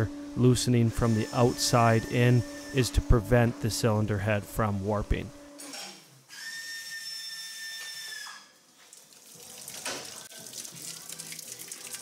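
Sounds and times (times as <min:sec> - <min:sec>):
steady high whistle: 0:06.4 - 0:08.5
water dripping: 0:08.8 - 0:12.0.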